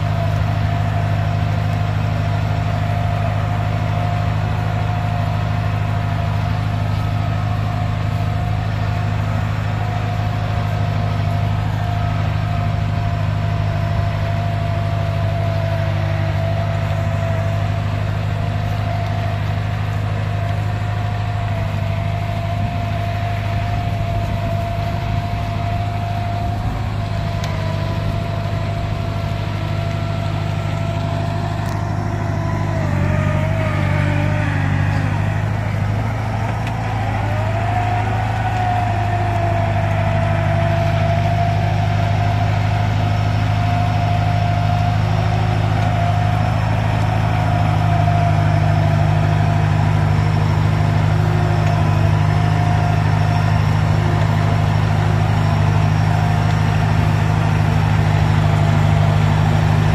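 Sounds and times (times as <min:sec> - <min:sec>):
diesel engine idling: 0:00.0 - 0:59.9.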